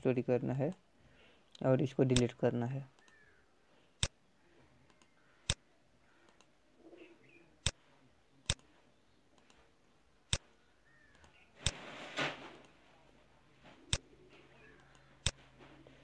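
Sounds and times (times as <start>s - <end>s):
mouse and keyboard clicks: 3.0s - 3.2s, 6.3s - 6.5s, 8.4s - 8.7s, 14.7s - 15.4s.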